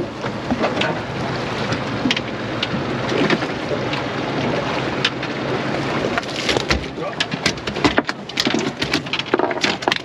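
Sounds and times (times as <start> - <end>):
waves slapping against boat: 0.0 - 10.0
small clicks and knocks: 6.2 - 10.0.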